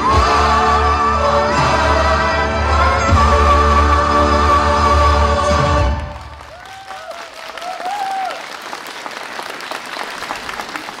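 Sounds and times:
recorded music: 0:00.0 - 0:06.4
audience applauding: 0:05.9 - 0:11.0.

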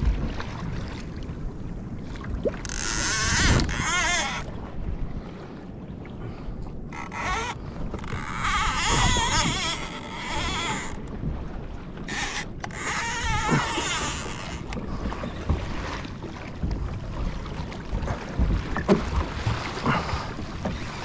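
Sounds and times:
water lapping against kayak: 0:00.0 - 0:21.0
wind buffeting microphone: 0:00.0 - 0:21.0.

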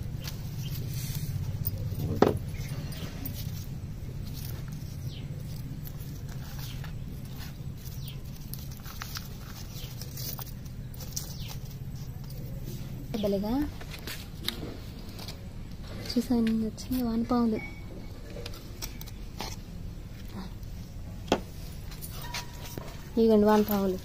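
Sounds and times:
manure rustling and pattering: 0:00.0 - 0:16.5
steady low hum: 0:00.0 - 0:24.0.

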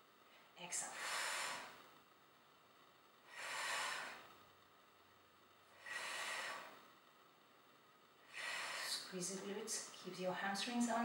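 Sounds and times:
woman breathing: 0:00.2 - 0:02.0, 0:03.2 - 0:04.5, 0:05.7 - 0:07.1, 0:08.2 - 0:09.2.

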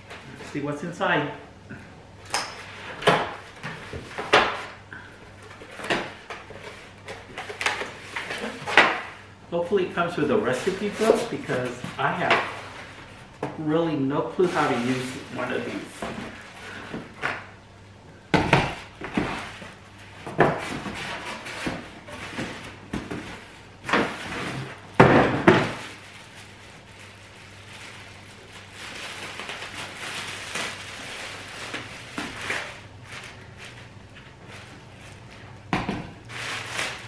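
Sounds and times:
plastic wrap rustling: 0:02.4 - 0:17.7, 0:18.6 - 0:37.0.

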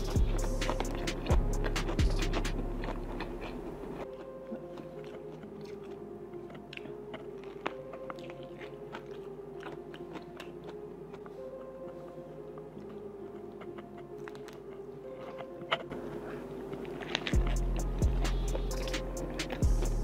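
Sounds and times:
background music with a beat: 0:00.0 - 0:02.8, 0:17.4 - 0:20.0
chewing and smacking: 0:00.0 - 0:20.0.

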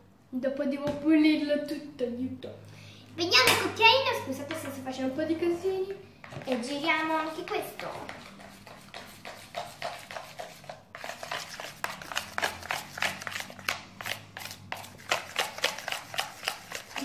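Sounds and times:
spoon scraping slime in bowl: 0:06.3 - 0:17.0.

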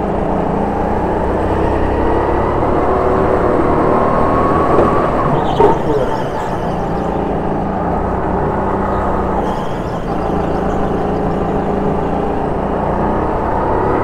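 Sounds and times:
go-kart motor running: 0:00.0 - 0:14.0
tyre squeal: 0:04.3 - 0:07.7.

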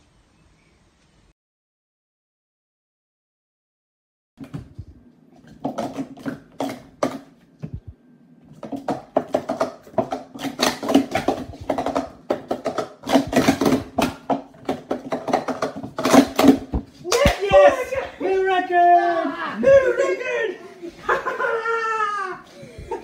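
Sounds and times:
plastic cups clattering: 0:05.4 - 0:07.4, 0:08.5 - 0:18.0.

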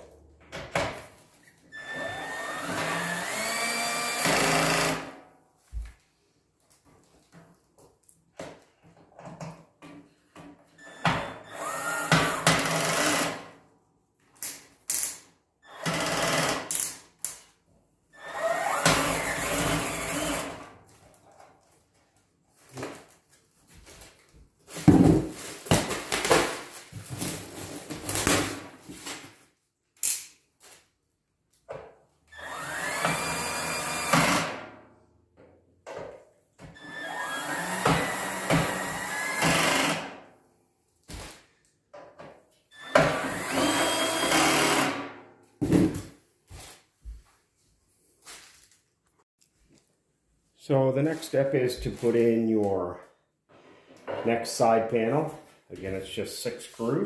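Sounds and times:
power drill driving screws: 0:01.8 - 0:05.2, 0:10.8 - 0:13.5, 0:15.7 - 0:16.8, 0:18.2 - 0:20.7, 0:32.3 - 0:34.6, 0:36.8 - 0:40.2, 0:42.7 - 0:45.1.

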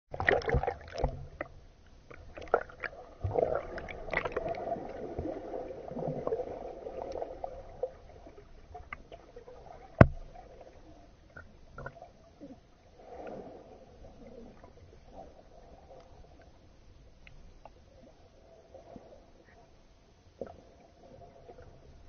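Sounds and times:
muffled swirling water and bubbles: 0:00.1 - 0:22.0.

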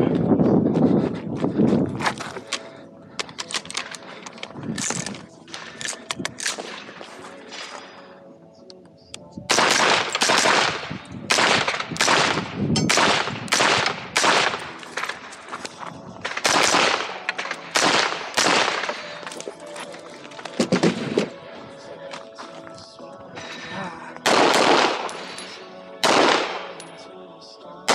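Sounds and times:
rifle gunshots with echo: 0:06.4 - 0:07.9, 0:09.5 - 0:15.3, 0:16.2 - 0:19.3, 0:24.2 - 0:26.9.

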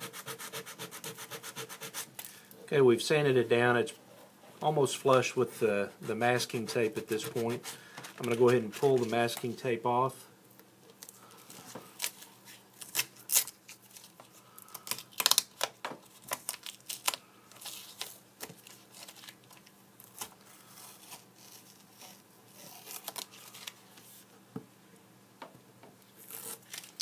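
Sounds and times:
masking tape being peeled: 0:12.0 - 0:18.2, 0:18.9 - 0:23.8, 0:26.2 - 0:27.0.

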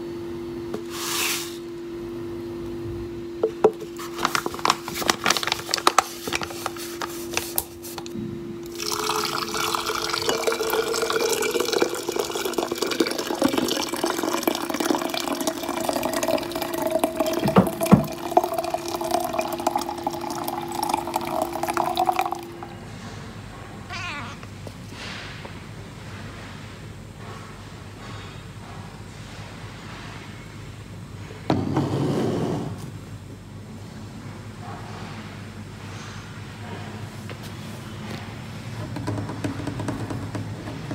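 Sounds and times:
paper bag crackling: 0:03.8 - 0:08.0
water pouring into glass: 0:08.7 - 0:22.7
cat meowing: 0:23.8 - 0:24.6.

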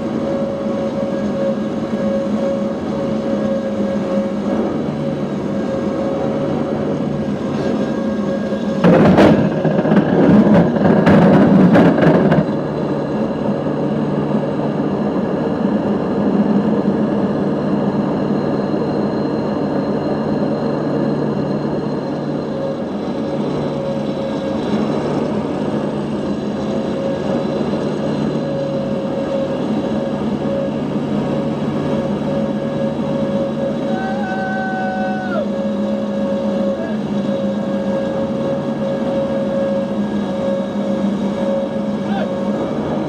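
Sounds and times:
turboprop engines droning: 0:00.0 - 0:43.0.

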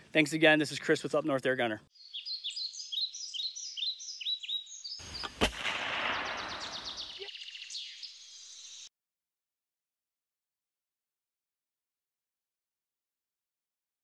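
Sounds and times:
bird chirping: 0:01.9 - 0:08.9
fast bird trill: 0:02.0 - 0:05.4, 0:06.0 - 0:08.8
sharp shot: 0:05.0 - 0:07.2.

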